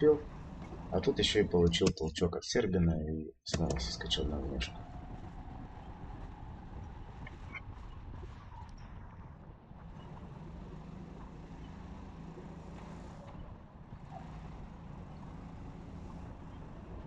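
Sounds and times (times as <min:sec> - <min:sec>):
kart engine running: 0:00.0 - 0:01.9, 0:03.5 - 0:08.8, 0:09.8 - 0:17.0
other karts: 0:00.0 - 0:02.8, 0:03.5 - 0:17.0
noisy rush: 0:03.5 - 0:17.0.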